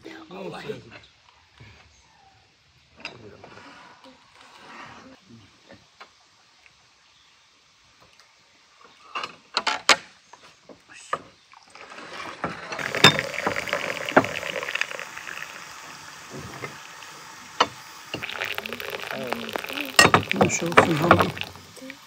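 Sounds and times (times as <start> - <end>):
hot water pouring into glass: 11.6 - 22.0
glass clinks: 20.0 - 21.5.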